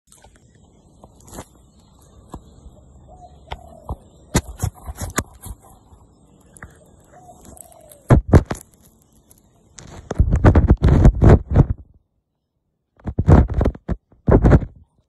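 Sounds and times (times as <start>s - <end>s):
loud thumps: 8.1s - 8.6s, 10.0s - 11.9s, 13.0s - 14.8s.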